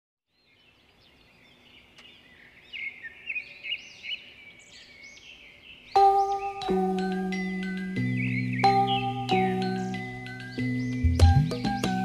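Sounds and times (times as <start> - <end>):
bird-like chirping: 0.4 - 12.0.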